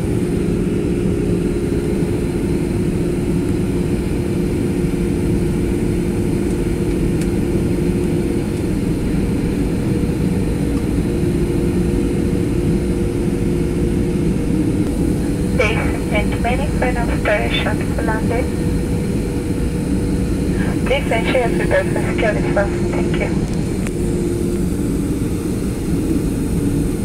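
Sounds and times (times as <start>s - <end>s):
jet engine roar in cabin: 0.0s - 27.0s
constant hum: 14.3s - 27.0s.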